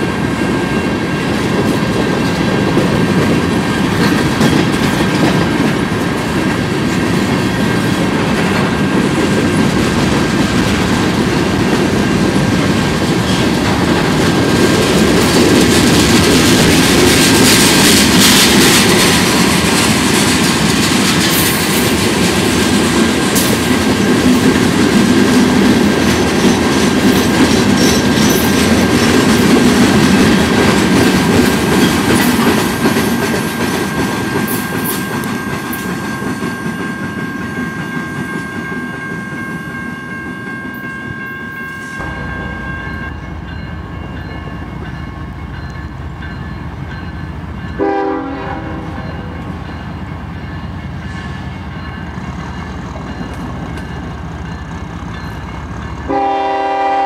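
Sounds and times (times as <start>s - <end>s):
freight train rolling on rails: 0.0s - 57.0s
train horn toot: 47.8s - 49.4s, 56.1s - 57.0s.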